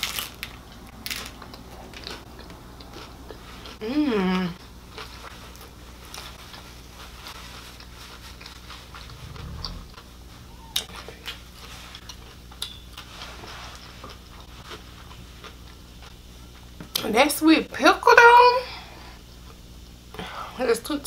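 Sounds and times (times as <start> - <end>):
steady low hum: 0.3 - 12.6
person chewing crunchy food: 1.1 - 3.9, 4.8 - 10.0.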